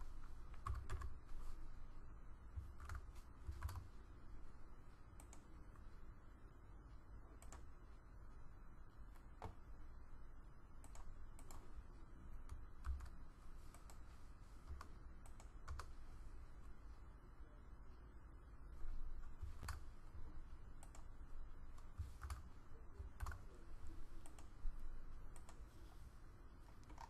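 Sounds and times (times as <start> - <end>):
low steady hum: 0.0 - 27.0
computer keyboard keystrokes: 0.5 - 1.2, 2.6 - 3.8, 7.4 - 7.7, 10.8 - 11.7, 12.4 - 13.2, 14.7 - 15.9, 21.8 - 22.4, 23.0 - 23.5, 25.3 - 25.6, 26.8 - 27.0.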